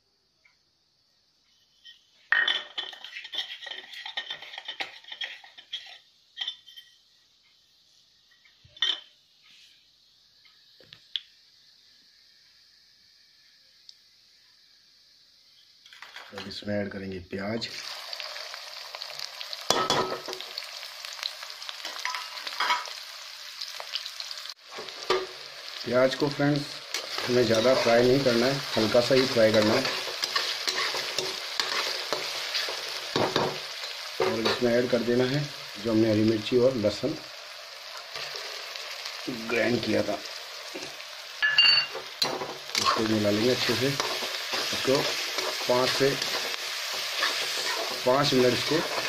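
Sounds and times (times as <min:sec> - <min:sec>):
seeds crackling in hot oil: 0:00.2 - 0:49.0
pan clatter: 0:01.9 - 0:07.0, 0:26.9 - 0:34.8, 0:40.8 - 0:49.0.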